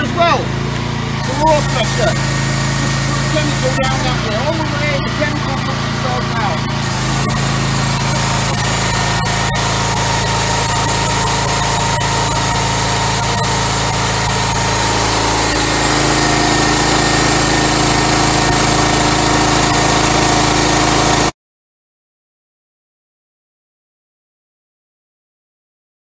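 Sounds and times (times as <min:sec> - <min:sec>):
pressure washer engine hum: 0:00.0 - 0:21.3
high-pressure water spray hiss: 0:01.2 - 0:04.2, 0:06.8 - 0:21.3.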